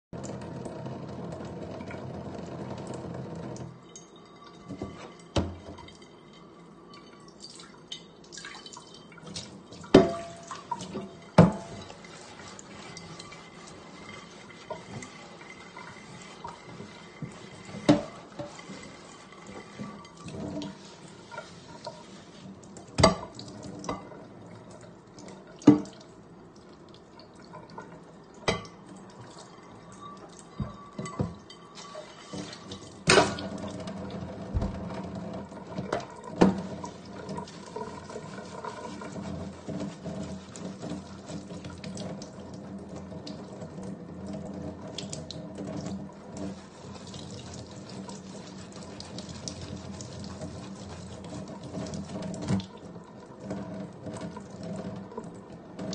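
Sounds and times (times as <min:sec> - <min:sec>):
tap water running into sink: 0:00.2 - 0:04.0, 0:04.6 - 0:06.1, 0:08.3 - 0:55.9
sponge scrubbing dishes: 0:09.2 - 0:24.2, 0:30.4 - 0:43.8, 0:45.6 - 0:52.8
pan and knife clanking on sink: 0:09.9 - 0:12.0, 0:17.2 - 0:18.9, 0:30.5 - 0:33.8.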